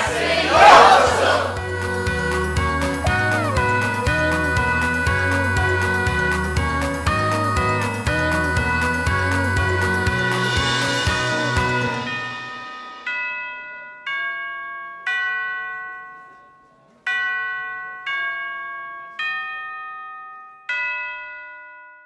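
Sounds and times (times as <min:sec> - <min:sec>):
background music: 0:00.0 - 0:13.5
bell-like chime notes: 0:10.4 - 0:22.0.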